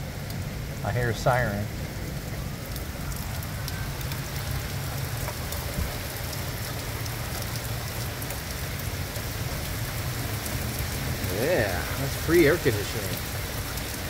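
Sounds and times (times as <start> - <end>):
rain splashing on hard surfaces: 0.0 - 14.0.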